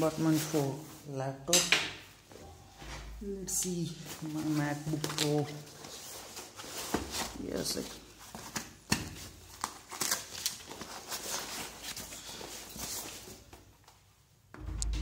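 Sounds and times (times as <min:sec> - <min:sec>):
backpack fabric rustling: 0:04.0 - 0:08.6.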